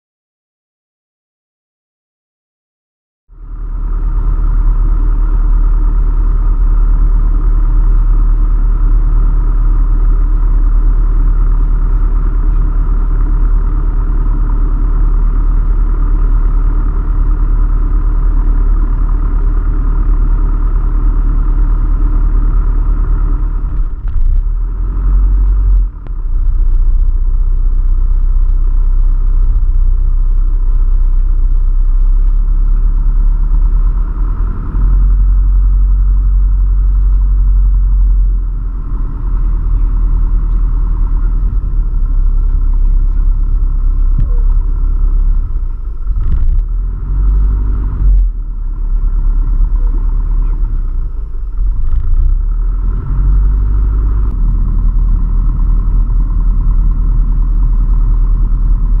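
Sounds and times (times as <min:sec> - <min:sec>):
light aircraft engine and propeller: 0:03.4 - 0:59.0.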